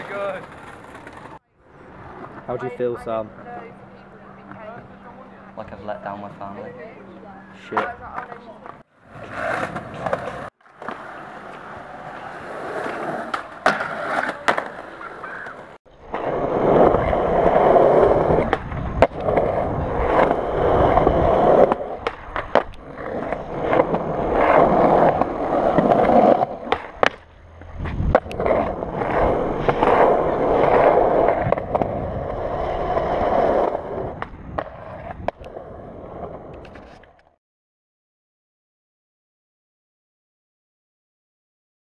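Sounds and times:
skateboard clacking on ground: 0:00.0 - 0:01.4, 0:07.7 - 0:15.7
skateboard wheels rolling on concrete: 0:00.0 - 0:37.4.

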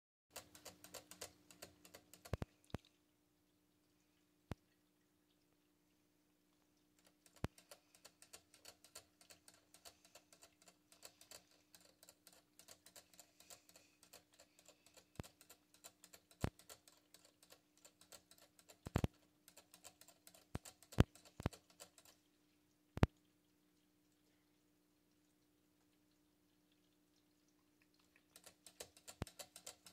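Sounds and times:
cat licking metal spout: 0:00.4 - 0:02.9, 0:07.0 - 0:22.3, 0:26.1 - 0:29.9.

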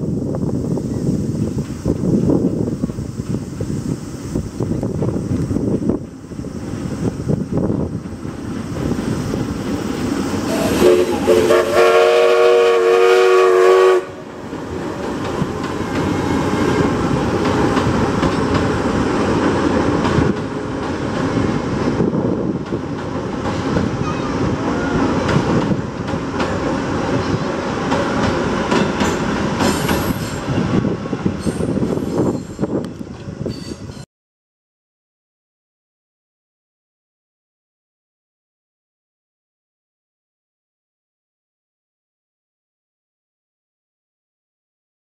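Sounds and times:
train rumbling over steel bridge: 0:00.0 - 0:34.1
steam locomotive whistle: 0:10.4 - 0:14.5.

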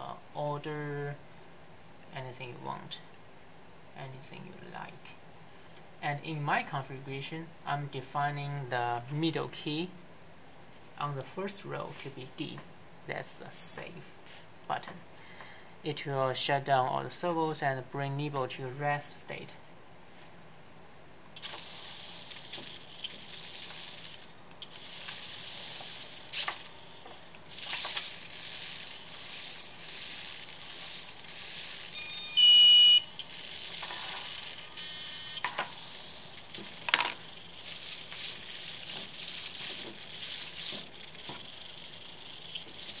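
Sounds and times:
servo clicks: 0:21.3 - 0:43.0
servos whirring: 0:21.3 - 0:43.0
electronic beeping tune: 0:31.9 - 0:33.1.

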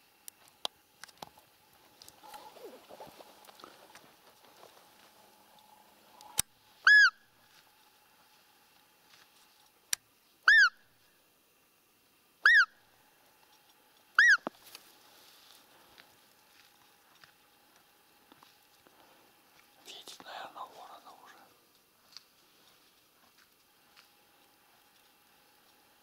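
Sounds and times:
deer lure call squeaks: 0:06.8 - 0:07.2, 0:10.4 - 0:10.8, 0:12.4 - 0:12.7, 0:14.2 - 0:14.5.

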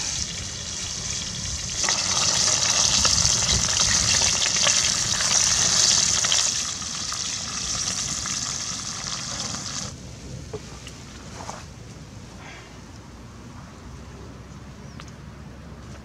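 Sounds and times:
fish sizzling in hot oil: 0:00.0 - 0:09.9.

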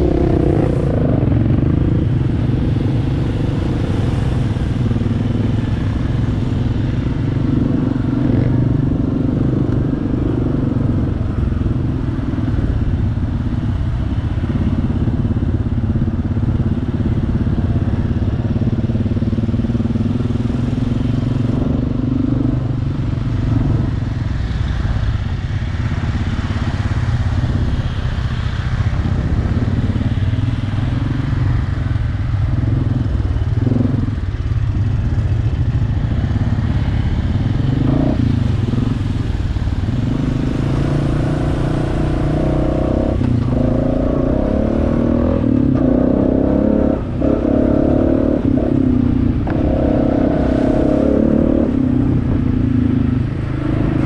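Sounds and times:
atv engine revving: 0:00.0 - 0:06.3, 0:32.2 - 0:54.0.

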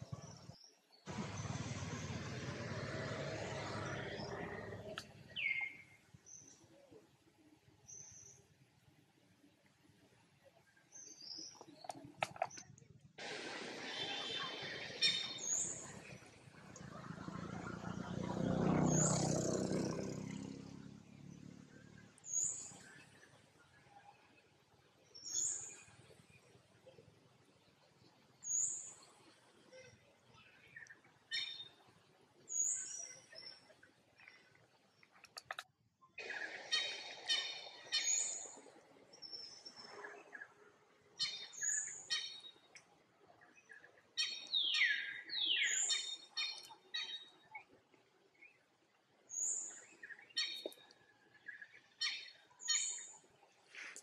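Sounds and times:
low hum: 0:00.0 - 0:05.4.

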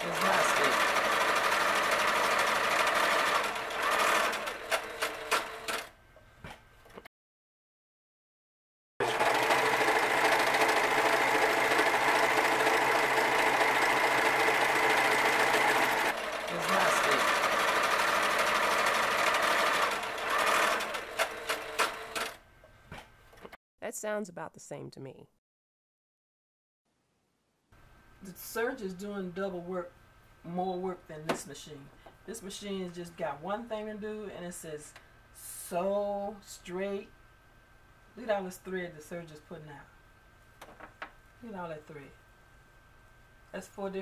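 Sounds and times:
sewing machine stitching: 0:00.0 - 0:05.9, 0:09.0 - 0:22.4.

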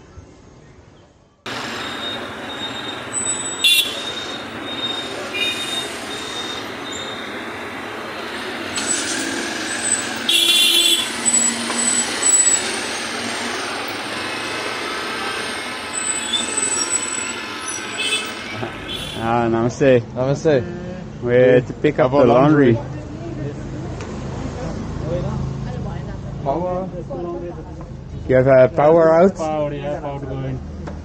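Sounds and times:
steady traffic din: 0:00.2 - 0:31.0
car horns tooting: 0:01.5 - 0:19.4.

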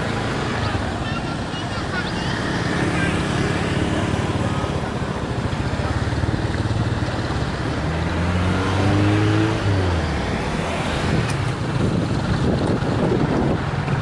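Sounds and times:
motorcycles running: 0:00.0 - 0:14.0
engine revving: 0:02.4 - 0:11.8.

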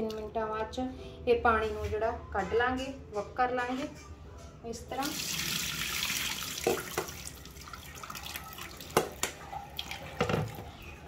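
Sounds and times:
tap water pouring into a sink: 0:05.0 - 0:10.6
water dripping into a sink: 0:05.0 - 0:10.6.

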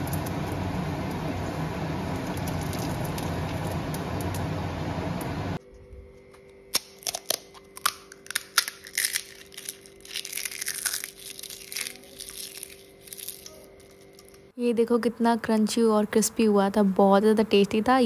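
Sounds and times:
crisp shells crushed by hand: 0:06.7 - 0:14.5.

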